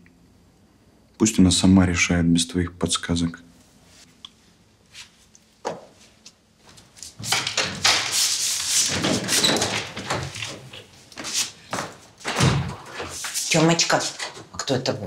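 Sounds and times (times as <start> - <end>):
wooden door opening and shutting: 7.2 - 10.9, 11.8 - 13.2.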